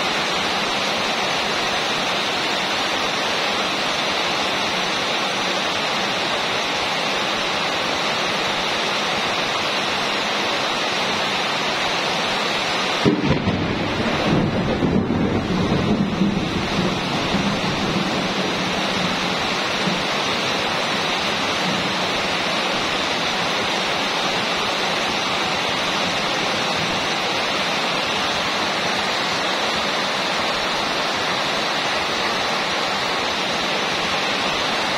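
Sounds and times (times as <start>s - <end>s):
rain on a metal roof: 0.0s - 34.9s
low thunder rumble: 13.0s - 20.0s.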